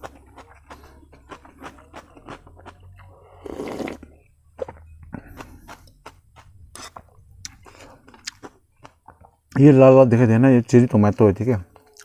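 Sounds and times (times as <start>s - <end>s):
chewing and eating noises: 0.0s - 9.6s, 11.7s - 12.0s
slurping soup: 0.2s - 8.5s.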